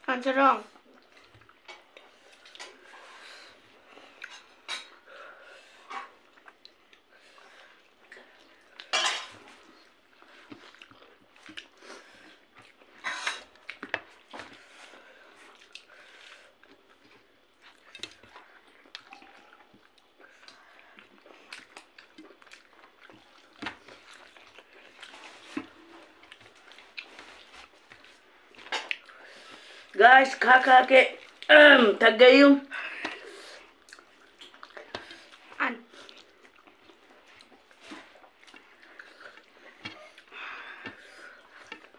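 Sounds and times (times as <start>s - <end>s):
wet chewing and mouth noises: 0.6s - 30.5s, 31.1s - 31.8s, 32.7s - 41.9s.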